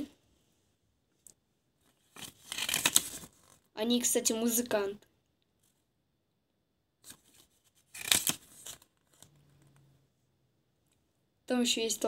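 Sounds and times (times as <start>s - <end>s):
paper leaflet crinkling: 2.0s - 3.6s, 7.0s - 9.4s.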